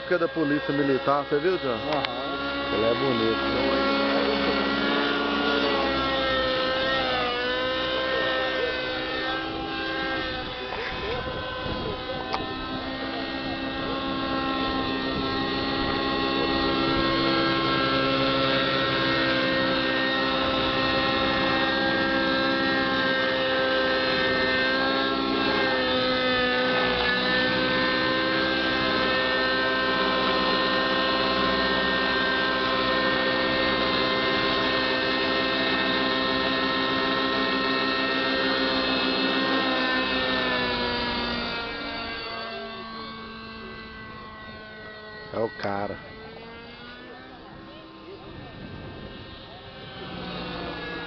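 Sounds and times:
model helicopter drone: 0.0 - 51.0.

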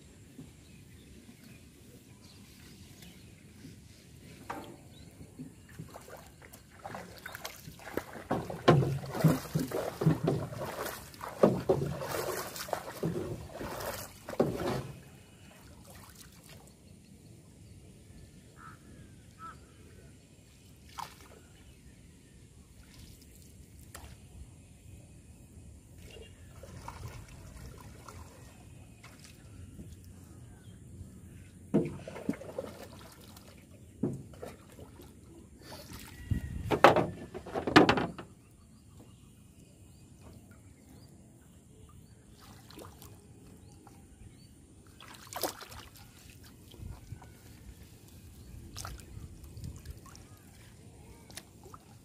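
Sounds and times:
water sloshing around boat: 0.0 - 25.0, 25.8 - 52.0
water splashes: 4.6 - 17.1, 20.6 - 21.8, 26.0 - 30.3, 31.8 - 37.2, 41.8 - 52.0
wooden pole knocks: 8.3 - 10.5, 36.6 - 38.3.

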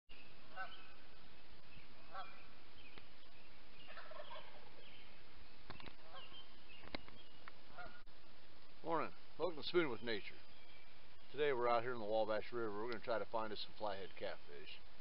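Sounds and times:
small birds chirping: 0.1 - 15.0
turkeys gobbling: 3.8 - 4.9, 7.7 - 8.0.

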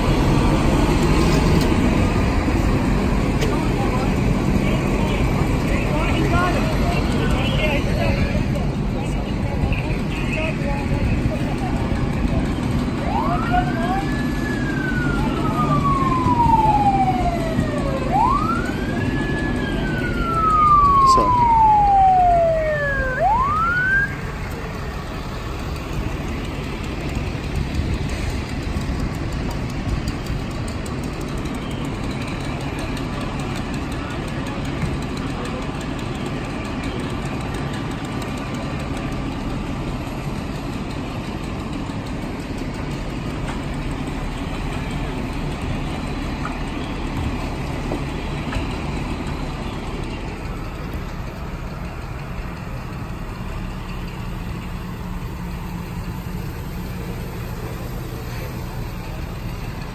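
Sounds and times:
low engine rumble: 0.0 - 59.9
siren wailing: 12.7 - 24.5.

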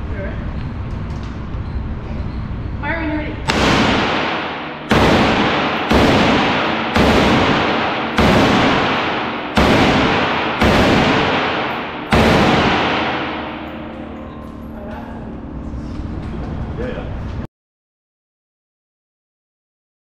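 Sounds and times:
rifle shots echoing indoors: 3.4 - 14.4.

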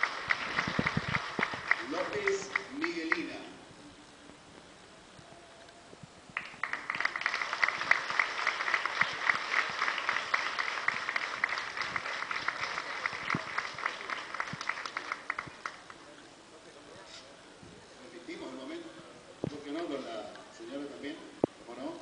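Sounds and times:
crowd applauding: 0.0 - 3.4, 6.4 - 16.1.

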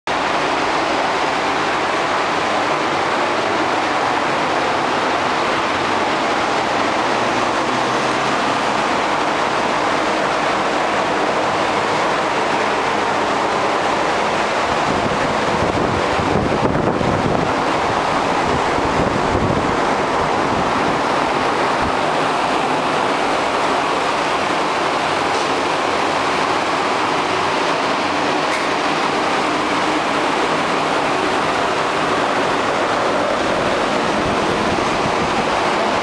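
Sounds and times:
loud rushing noise: 0.1 - 36.0.

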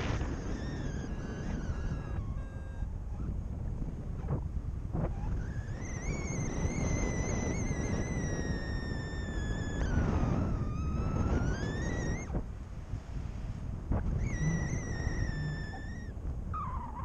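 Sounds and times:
whistling tone: 0.0 - 3.3, 5.1 - 12.4, 14.2 - 17.0
wind buffeting microphone: 0.0 - 17.0.

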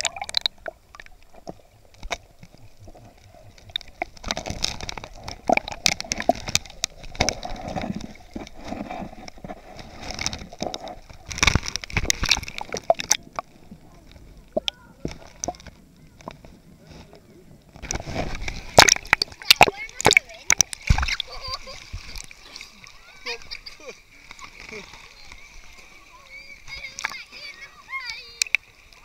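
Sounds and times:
camera clicks and knocks underwater: 0.0 - 16.6, 17.6 - 21.3, 26.7 - 27.2, 28.4 - 28.6
water sloshing and gurgling: 0.0 - 29.0
water splashes: 0.0 - 29.0.

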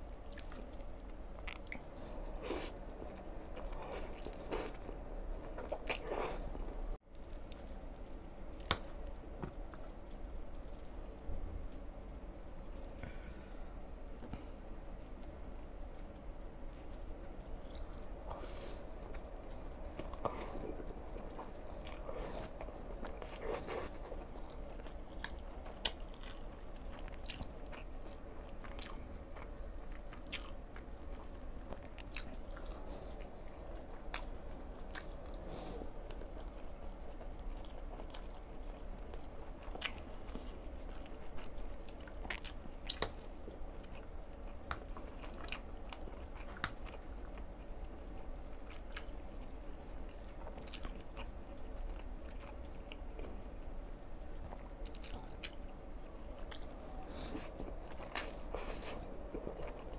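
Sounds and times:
chewing: 0.1 - 59.9.

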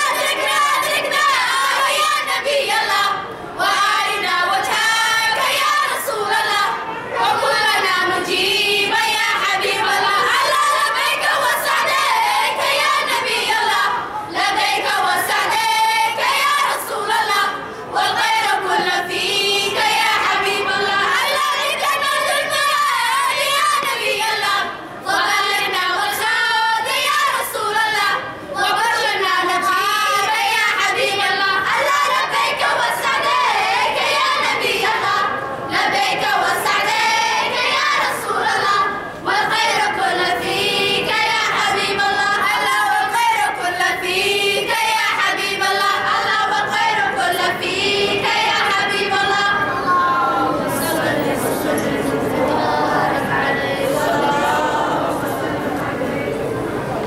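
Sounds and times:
girls choir singing: 0.0 - 57.0.

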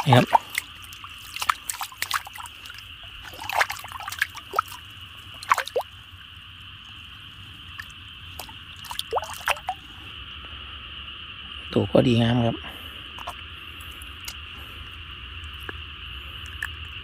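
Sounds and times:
water dripping and plopping: 0.0 - 6.0, 7.7 - 9.8, 16.4 - 17.0
high-pitched insect chorus: 0.0 - 17.0.

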